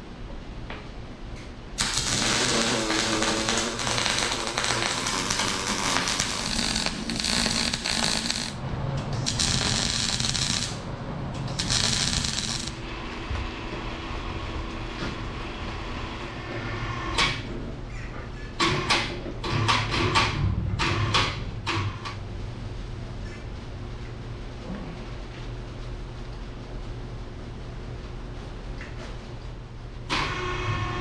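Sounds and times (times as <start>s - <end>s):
steady low hum: 0.0s - 18.6s, 19.2s - 31.0s
welding arc hiss and crackle: 1.8s - 17.4s.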